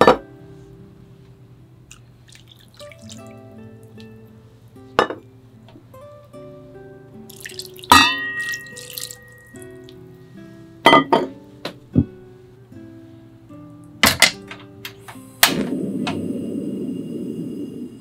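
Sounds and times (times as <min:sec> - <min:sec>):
soft background music: 0:00.0 - 0:17.9
liquid splashing: 0:01.9 - 0:04.2, 0:07.3 - 0:10.0
sauce pouring into bowl: 0:01.9 - 0:04.2, 0:07.3 - 0:10.0.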